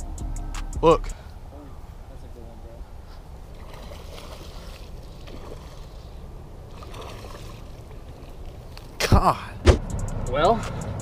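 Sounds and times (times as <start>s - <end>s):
faint water splashing: 1.2s - 9.4s.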